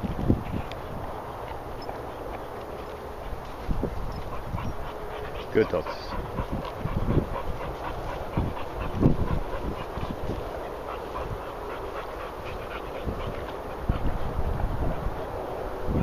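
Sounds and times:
dogs trotting through grass: 0.0 - 15.2
footsteps: 1.4 - 11.3.

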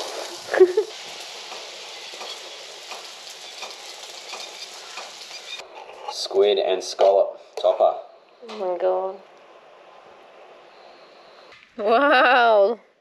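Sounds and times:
seafood sizzling in a frying pan: 0.0 - 5.6.

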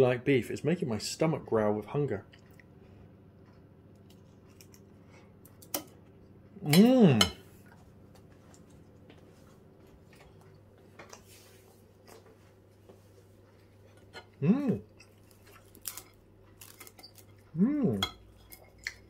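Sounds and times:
man humming: 6.6 - 7.3, 14.4 - 14.9, 17.5 - 18.1.

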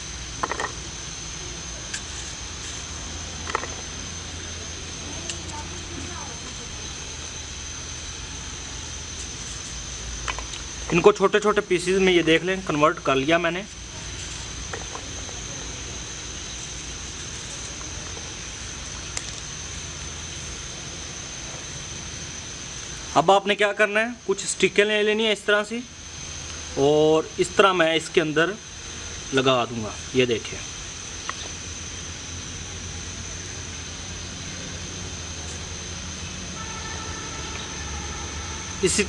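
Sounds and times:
high-pitched whine: 0.0 - 39.0
low background rumble and hum: 0.0 - 39.0
faint steady multi-note tone: 35.9 - 39.0.

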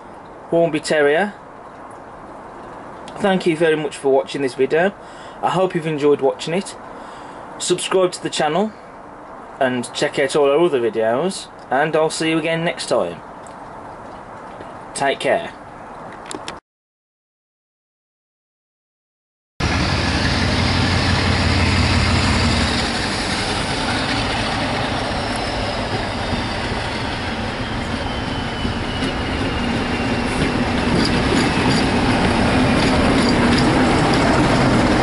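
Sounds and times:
diesel locomotive engine: 19.6 - 35.0
wheels clicking over rail joints: 23.3 - 35.0.

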